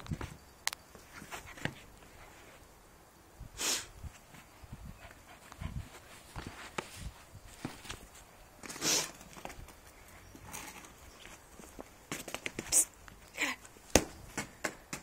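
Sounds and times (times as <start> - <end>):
light knocks and scuffs on grass: 0.0 - 2.6, 4.1 - 9.8, 13.7 - 15.0.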